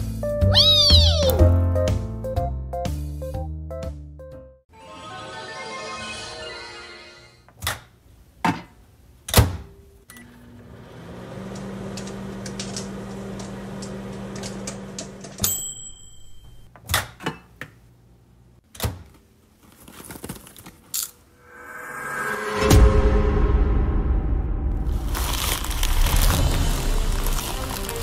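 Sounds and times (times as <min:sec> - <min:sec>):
microwave humming: 0:10.1 - 0:16.6
popcorn popping: 0:25.2 - 0:28.0.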